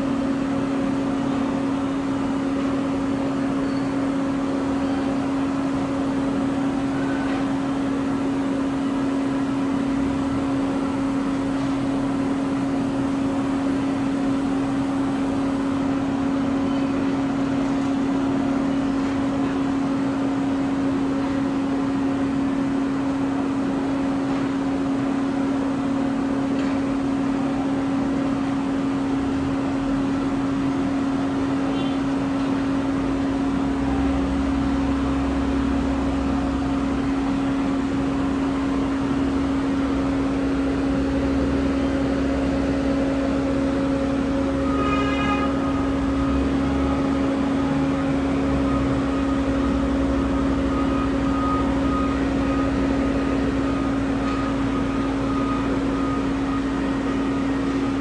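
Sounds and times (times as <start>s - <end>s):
baggage tractor engine running: 0.0s - 58.0s
short horn-like tone: 31.7s - 32.2s, 44.2s - 57.6s.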